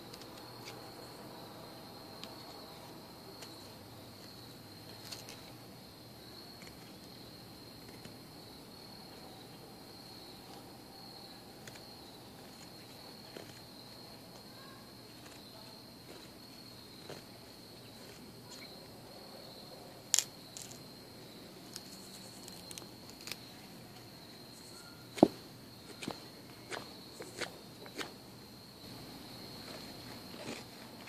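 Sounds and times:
insects trilling: 0.0s - 31.0s
knife shaving wooden stick: 11.3s - 18.8s, 20.1s - 20.8s, 21.6s - 23.8s, 24.8s - 28.2s.

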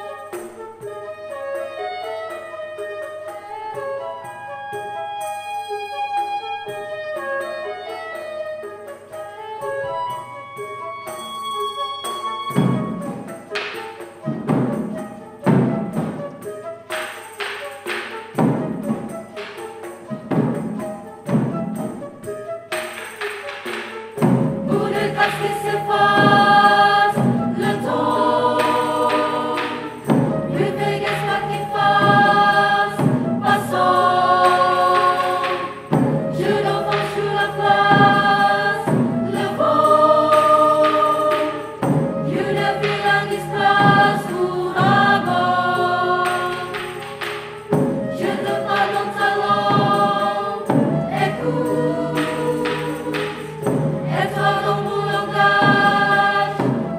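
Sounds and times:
mixed choir singing: 24.2s - 56.9s.

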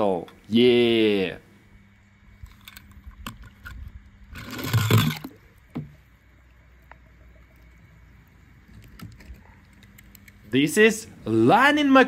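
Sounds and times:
toy car splashing into water: 4.4s - 5.4s.

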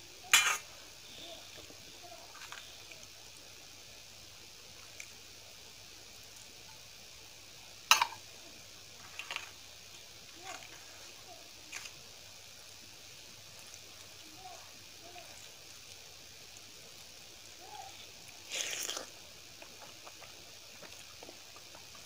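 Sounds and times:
wet squishing of food by hand: 9.0s - 22.0s.

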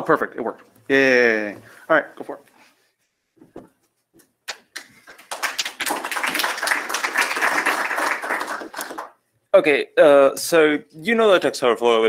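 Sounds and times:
audience applause: 4.8s - 9.2s.

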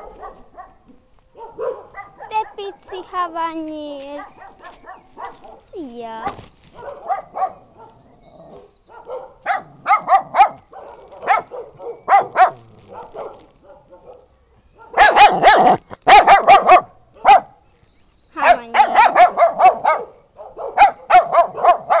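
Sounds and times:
small dogs yapping: 4.1s - 17.5s, 18.4s - 22.0s.

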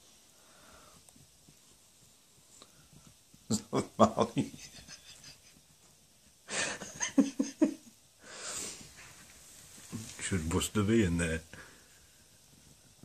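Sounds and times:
person laughing: 3.5s - 5.6s, 6.5s - 7.9s.

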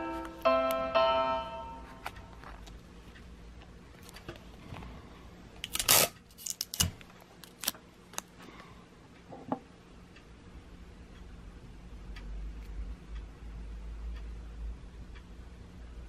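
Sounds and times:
tape crackling and clicking: 1.9s - 4.9s, 5.6s - 8.4s.

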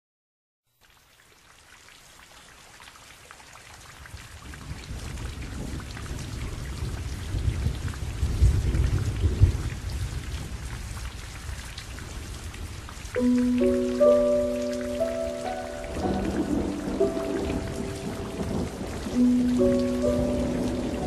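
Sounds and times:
heavy rain falling: 4.0s - 21.0s
low rumble of thunder: 4.4s - 13.9s, 15.6s - 21.0s.

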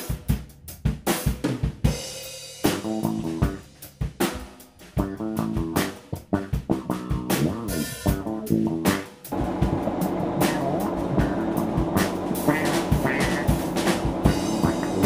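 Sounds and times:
band music: 0.0s - 15.0s
drum kit beat: 0.0s - 15.0s.

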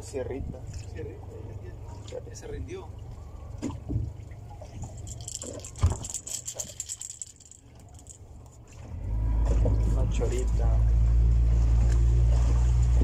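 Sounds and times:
knocks and rattles: 4.8s - 8.6s.

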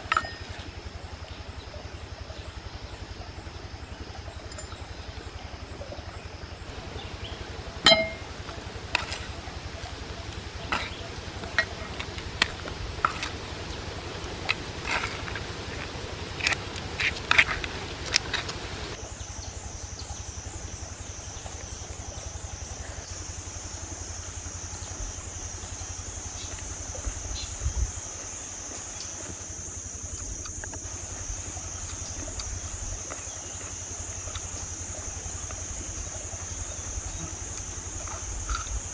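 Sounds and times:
knife and spoon clinking on clay bowl: 0.0s - 0.6s, 7.9s - 8.3s.

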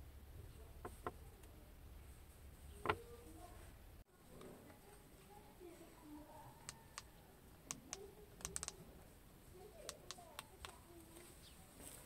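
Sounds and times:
remote control buttons clicking: 6.6s - 8.8s, 9.8s - 10.8s.

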